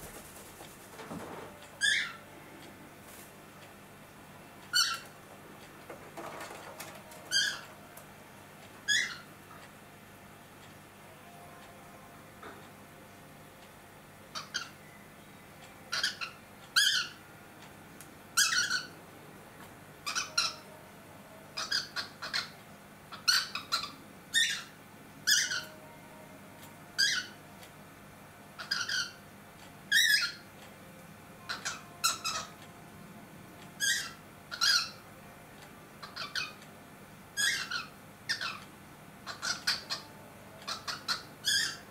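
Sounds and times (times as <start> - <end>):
cockatiel calling: 1.8 - 2.2, 7.3 - 7.6, 8.9 - 9.3, 20.0 - 20.7, 21.6 - 22.5, 23.1 - 24.7, 25.3 - 25.8, 27.0 - 27.4, 28.6 - 29.2, 31.5 - 32.5, 33.8 - 35.0, 36.0 - 36.6, 37.4 - 38.6, 39.2 - 40.1, 40.7 - 41.8.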